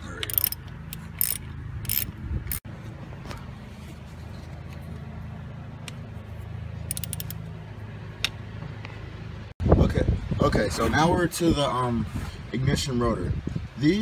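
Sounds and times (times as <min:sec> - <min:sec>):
ratchet clicks: 0:00.2 - 0:02.6, 0:06.9 - 0:07.4
light metallic clicks and scrapes: 0:05.8 - 0:07.4.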